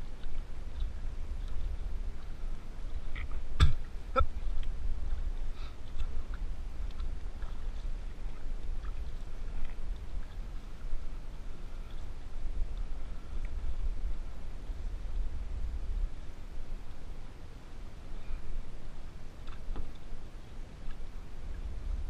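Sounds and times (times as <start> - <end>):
paddle splashes and drips: 0.0 - 15.4
steady low rumble: 0.0 - 22.0.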